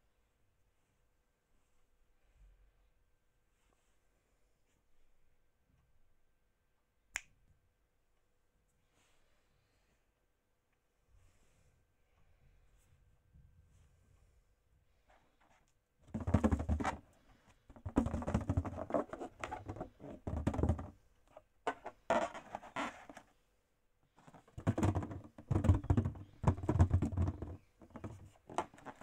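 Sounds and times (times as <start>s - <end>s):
balloons rubbing and squeezing: 17.7s - 20.9s.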